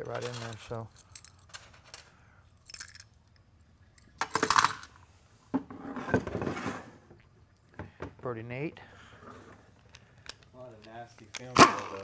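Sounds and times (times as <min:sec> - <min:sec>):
metal parts clattering on workbench: 0:00.0 - 0:02.1, 0:04.2 - 0:05.0
metal parts clinking: 0:00.0 - 0:05.0.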